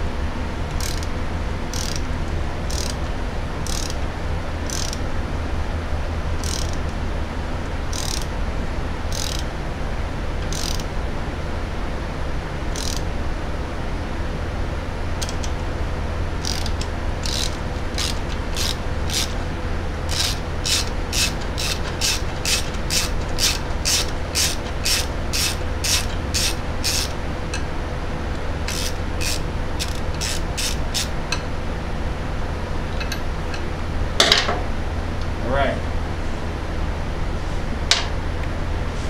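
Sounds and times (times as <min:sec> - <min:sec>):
steady low hum: 0:00.0 - 0:39.0
hand ratchet clicking: 0:00.7 - 0:01.1, 0:01.7 - 0:02.0, 0:02.7 - 0:03.0, 0:03.6 - 0:04.0, 0:04.7 - 0:05.0, 0:06.4 - 0:06.9, 0:07.9 - 0:08.3, 0:09.1 - 0:09.5, 0:10.4 - 0:10.9, 0:12.7 - 0:13.0, 0:15.2 - 0:15.6, 0:16.4 - 0:19.4, 0:20.1 - 0:27.2, 0:28.7 - 0:31.1.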